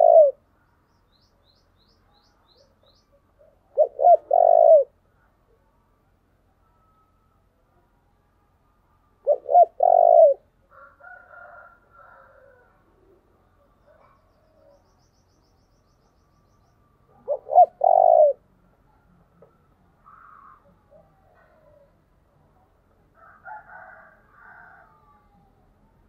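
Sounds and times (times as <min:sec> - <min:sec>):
dove cooing: 0:00.0 - 0:00.4, 0:03.4 - 0:05.0, 0:09.2 - 0:10.5, 0:17.1 - 0:18.5, 0:20.0 - 0:22.0
faint bird chirps: 0:00.0 - 0:10.5, 0:13.1 - 0:22.2.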